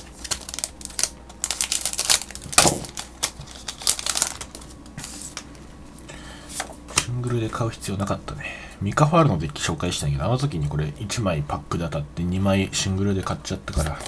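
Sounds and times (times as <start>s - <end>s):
scissors snipping foil pack: 0.0s - 4.6s
wrapper crinkling: 0.0s - 5.5s.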